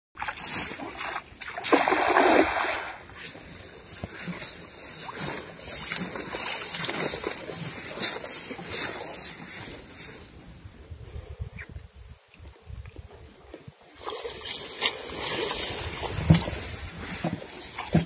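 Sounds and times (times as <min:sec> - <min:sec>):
net splashing into water: 0:00.2 - 0:03.3
scattered water noise: 0:00.2 - 0:18.0.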